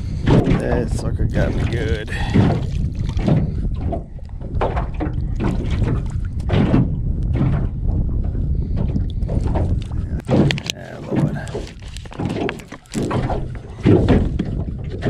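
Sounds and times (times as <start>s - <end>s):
small waves slapping hull: 0.0s - 15.0s
wind rumbling on microphone: 0.0s - 15.0s
water pouring and splattering: 0.3s - 3.6s, 9.3s - 15.0s.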